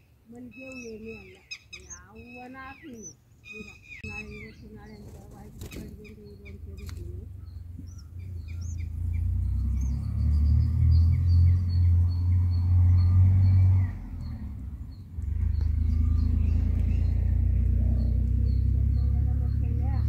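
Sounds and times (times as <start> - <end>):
nestlings begging chirps: 0.0 - 20.0
low rumble: 4.0 - 20.0.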